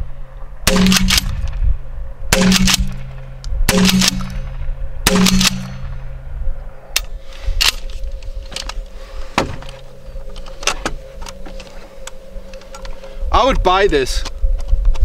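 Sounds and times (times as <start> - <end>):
shotgun blast: 0.6 - 1.5, 2.3 - 6.0.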